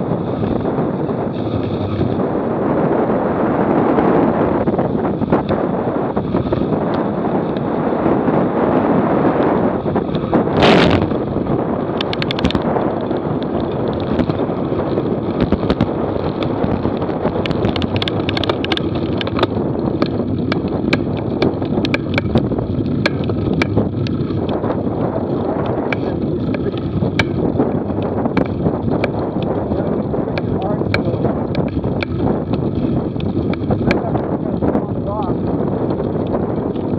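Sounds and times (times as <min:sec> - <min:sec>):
tyre and road rumble: 0:00.0 - 0:36.9
wind on microphone: 0:00.0 - 0:36.9
sharp clicks and rattles: 0:09.8 - 0:36.9.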